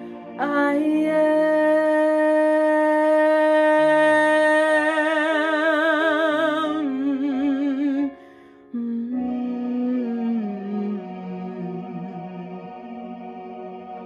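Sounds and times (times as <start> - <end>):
soft instrumental backing track: 0.0 - 9.9
woman singing: 0.4 - 8.2, 8.8 - 12.7.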